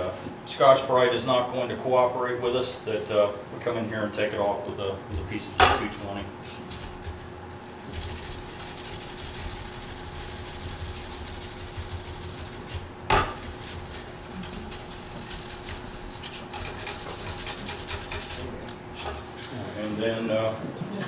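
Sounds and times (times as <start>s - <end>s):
abrasive scrubbing brass sheet: 7.8s - 18.6s.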